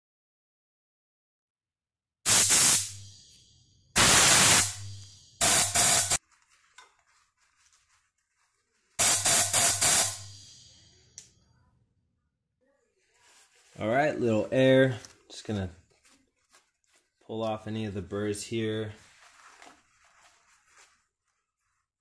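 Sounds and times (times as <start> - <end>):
compressed-air tool hissing bursts: 2.3 - 3.1, 4.0 - 6.2, 9.0 - 10.7.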